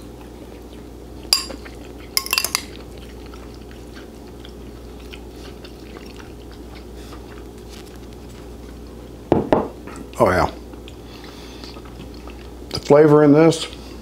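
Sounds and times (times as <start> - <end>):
utensil clinking against bowl: 1.3 - 1.6, 2.2 - 2.7.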